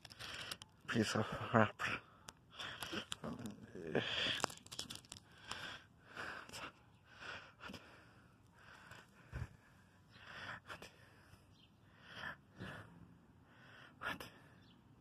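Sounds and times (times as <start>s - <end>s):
clicks and rustles: 0.0s - 0.9s, 2.2s - 5.7s
heavy breathing: 1.2s - 4.6s, 5.2s - 14.7s.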